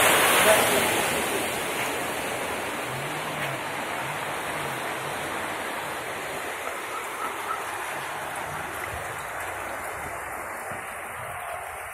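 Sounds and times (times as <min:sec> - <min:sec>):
rainwater rushing over street: 0:00.0 - 0:11.9.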